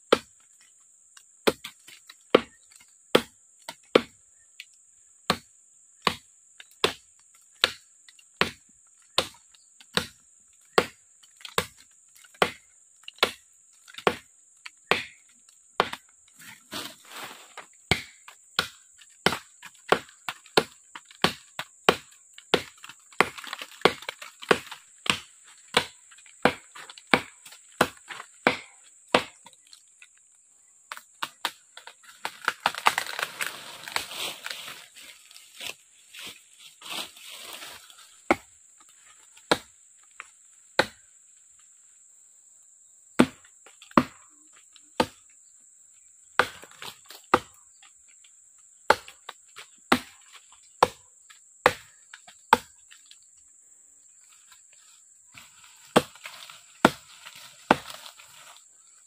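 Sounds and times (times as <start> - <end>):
machete chopping wood: 0.1 - 0.4, 1.4 - 4.2, 5.3 - 17.0, 17.6 - 29.6, 30.9 - 34.0, 38.3 - 38.5, 39.5 - 39.7, 40.8 - 41.0, 43.2 - 44.3, 45.0 - 45.2, 46.4 - 47.6, 48.9 - 51.0, 51.6 - 52.7, 55.8 - 58.2.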